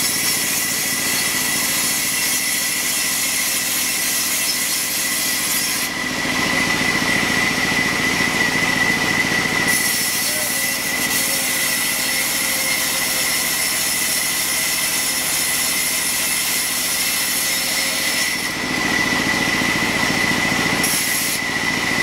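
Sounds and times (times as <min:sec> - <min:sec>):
band saw cutting log: 0:00.0 - 0:22.0.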